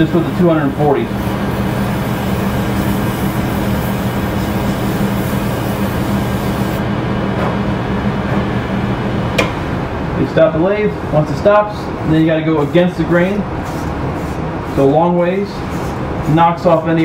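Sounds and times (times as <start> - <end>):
sandpaper rasping on wood: 0.4 - 6.7.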